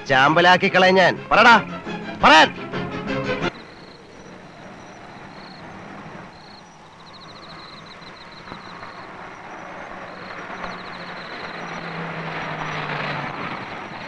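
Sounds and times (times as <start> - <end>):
car on rough road: 3.5 - 14.0
insects chirping: 3.5 - 14.0.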